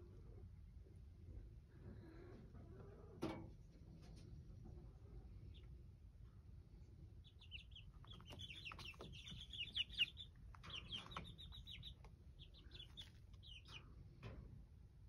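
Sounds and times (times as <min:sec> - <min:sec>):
chicks peeping: 0:04.0 - 0:06.0, 0:06.6 - 0:14.5.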